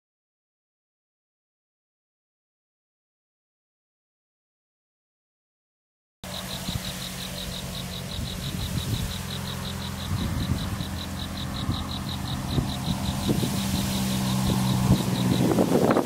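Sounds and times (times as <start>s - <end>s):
insect chirping: 6.2s - 16.0s
low rumbles: 6.3s - 16.0s
low steady hum: 6.3s - 16.0s.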